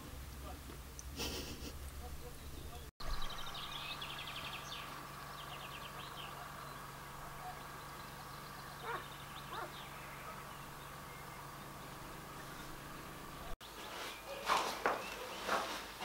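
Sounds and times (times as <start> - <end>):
high chirping trills: 1.9 - 15.5
distant dog barks: 5.8 - 7.8, 8.7 - 11.6, 14.2 - 15.6.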